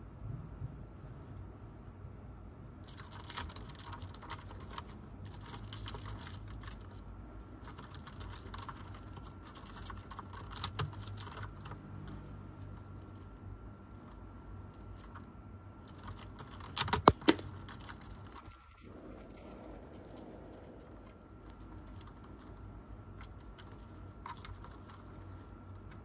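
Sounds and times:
beetle claws clicking on bark: 0:15.9 - 0:18.6.

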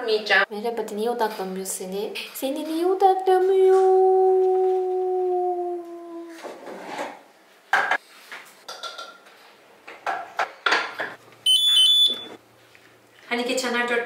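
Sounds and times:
voice holding a note: 0:03.7 - 0:06.4.

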